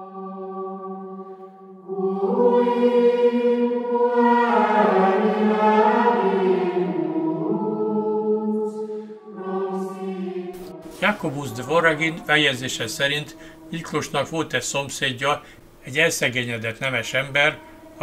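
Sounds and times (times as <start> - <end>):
low held drone: 0.0 - 15.2, 16.8 - 18.0
choir chanting sustained notes: 0.0 - 18.0.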